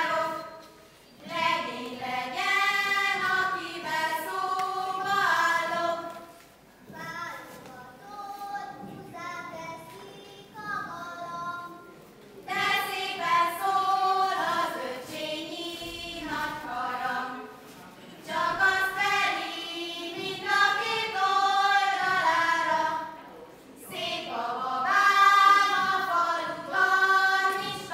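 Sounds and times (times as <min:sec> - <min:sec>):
young women singing together: 0:00.0 - 0:06.7, 0:12.5 - 0:27.9.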